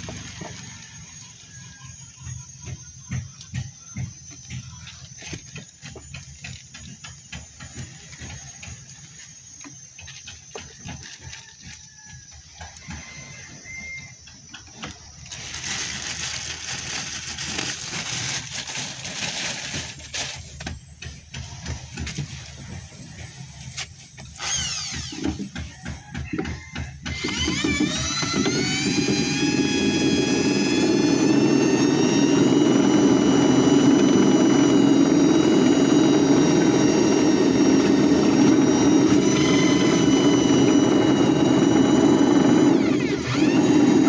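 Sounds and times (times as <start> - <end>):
plastic bag crinkling: 15.2 - 20.6.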